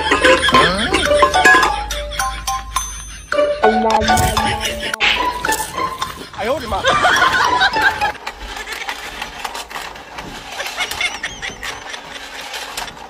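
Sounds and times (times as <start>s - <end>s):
rapid plastic clicking: 5.0s - 13.0s
small toy motor whirring: 5.3s - 13.0s.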